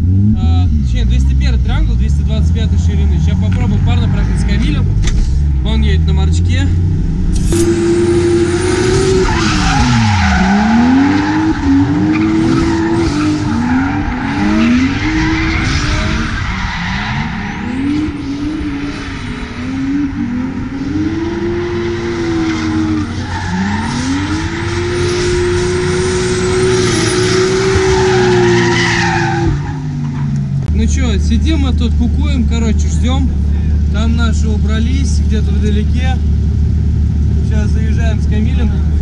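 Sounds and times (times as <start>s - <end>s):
car engine revving: 0.0s - 39.0s
tyres squealing: 7.8s - 20.0s.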